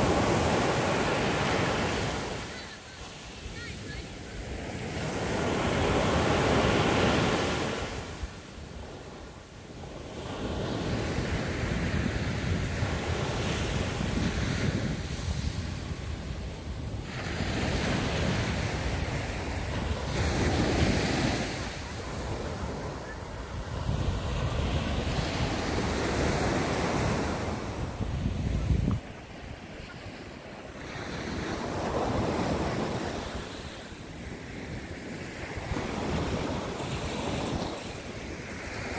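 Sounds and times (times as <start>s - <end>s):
waves breaking on beach: 0.0s - 38.9s
wind buffeting microphone: 10.8s - 29.7s.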